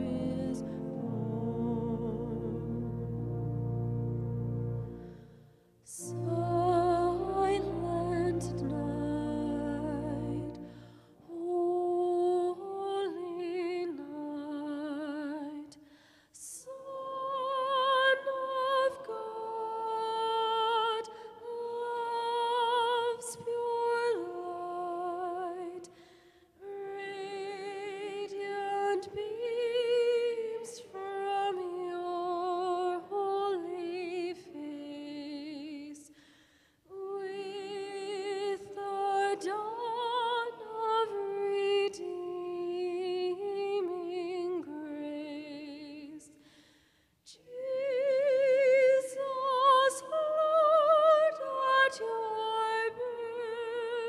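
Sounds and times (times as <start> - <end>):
person singing slow melody: 0.0 - 3.1.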